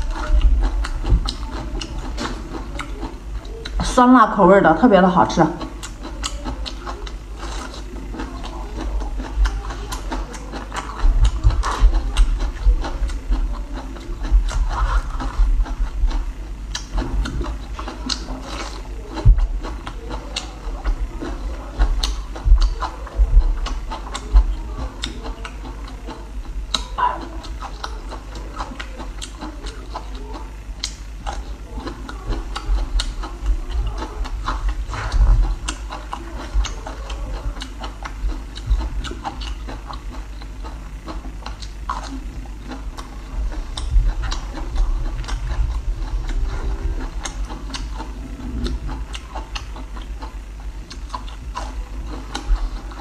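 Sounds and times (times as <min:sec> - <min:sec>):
chewing crunchy bamboo shoot: 0:00.0 - 0:03.8, 0:05.5 - 0:53.0
steady low hum: 0:00.0 - 0:53.0.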